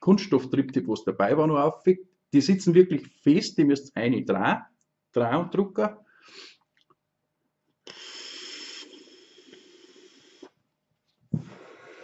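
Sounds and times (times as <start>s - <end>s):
air hissing through atomizer: 7.9s - 10.6s.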